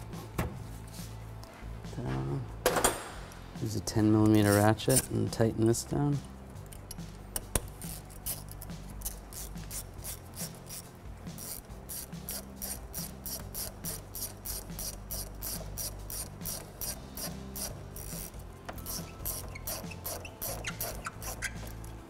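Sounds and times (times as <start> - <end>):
ratchet wrench clicking: 6.6 - 21.8.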